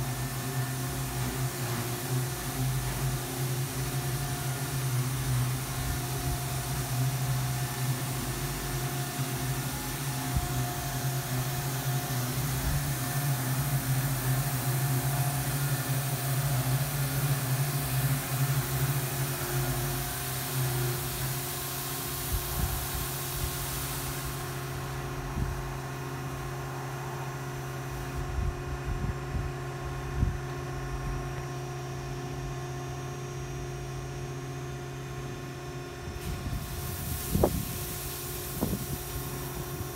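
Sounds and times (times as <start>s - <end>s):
high-pressure spray hiss: 0.0s - 26.7s, 36.2s - 39.9s
car wash pump and motor hum: 0.0s - 39.9s.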